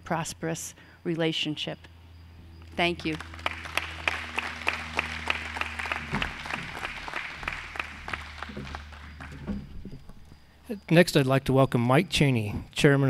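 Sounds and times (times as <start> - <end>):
audience applauding: 3.1 - 9.9.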